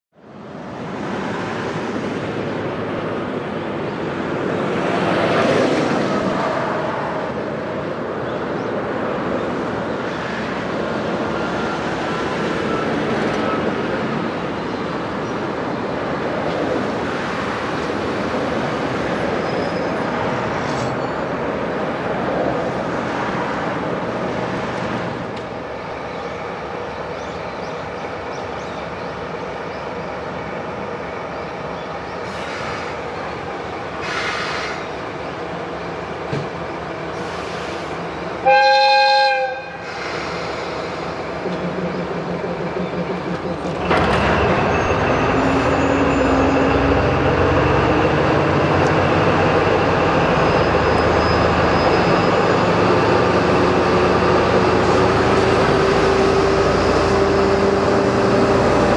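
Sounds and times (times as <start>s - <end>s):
diesel locomotive engine running: 0.2s - 58.9s.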